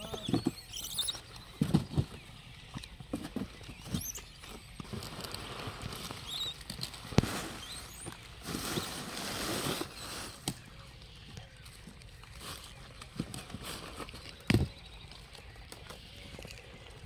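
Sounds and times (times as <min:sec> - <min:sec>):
faint high chirps: 0:00.0 - 0:08.9
paper and straw rustling: 0:03.2 - 0:17.0.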